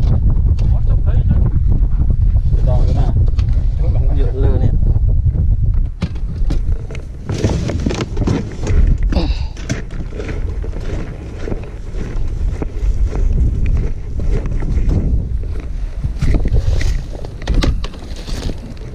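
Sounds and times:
wind buffeting microphone: 0:00.0 - 0:18.9
plastic boxes knocking and rustling: 0:06.0 - 0:10.0.

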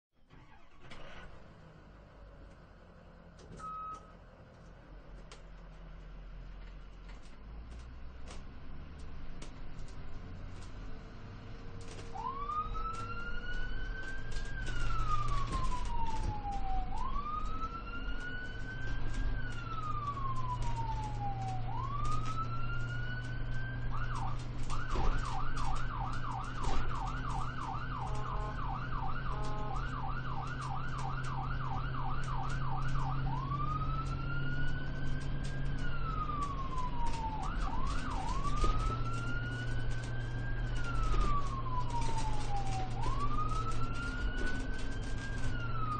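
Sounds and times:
vehicle road noise: 0:00.2 - 0:45.9
ambulance siren wailing: 0:00.3 - 0:01.2, 0:09.7 - 0:45.9
siren fast yelp: 0:12.1 - 0:45.9.

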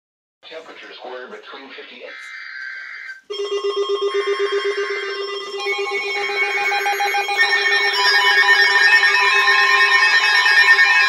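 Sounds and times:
rapidly pulsing low alarm tone: 0:01.6 - 0:11.0
faint steady alert tones: 0:01.8 - 0:10.0
warbling siren: 0:01.9 - 0:11.0
layered alert tones: 0:02.8 - 0:08.6.

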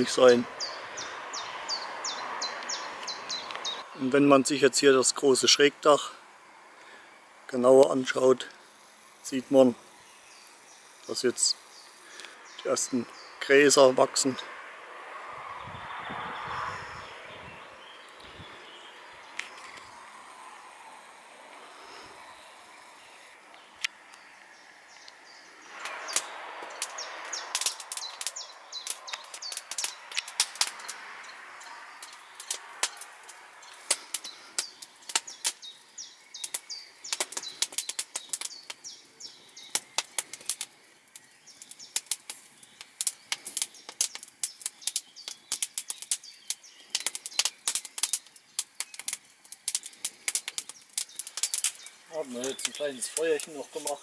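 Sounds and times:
wood fire crackling: 0:00.0 - 0:54.0
soft rustling hiss: 0:03.0 - 0:14.4.

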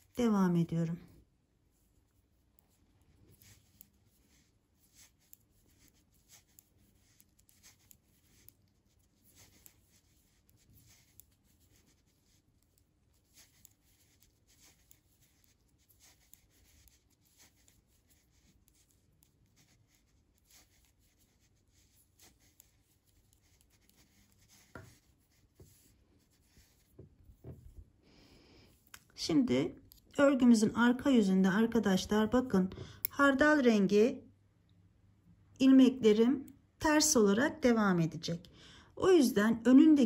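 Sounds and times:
knitting needles clicking: 0:02.1 - 0:27.7, 0:28.7 - 0:30.2.

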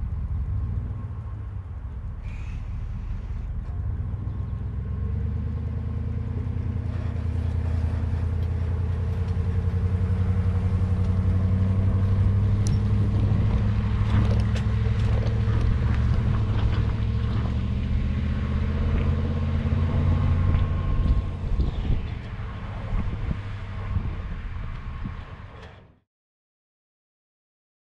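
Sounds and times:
pickup truck engine drone: 0:00.0 - 0:26.0
light rattles and knocks: 0:11.0 - 0:17.9.

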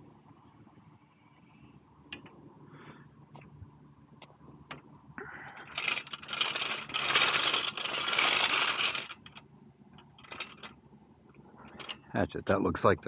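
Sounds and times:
metal lift rattling across asphalt: 0:05.5 - 0:10.8.

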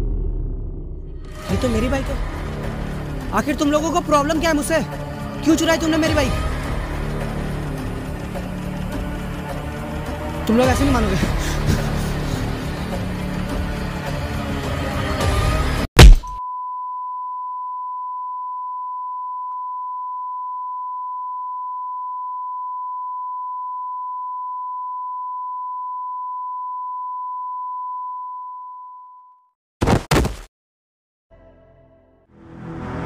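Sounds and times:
loud hit sound effect: 0:00.0 - 0:01.5, 0:16.0 - 0:16.4.

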